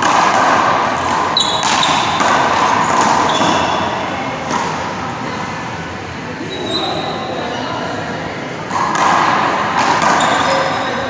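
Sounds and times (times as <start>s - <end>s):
sneakers squeaking on court: 0.9s - 4.1s, 6.4s - 7.6s, 9.8s - 11.0s.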